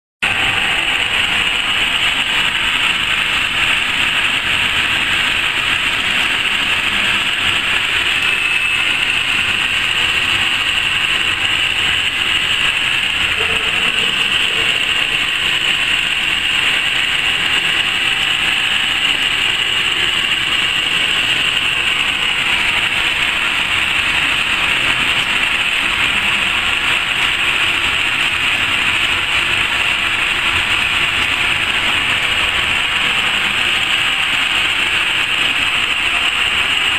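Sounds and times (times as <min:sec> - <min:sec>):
machine fans whirring and hissing: 0:00.2 - 0:36.9.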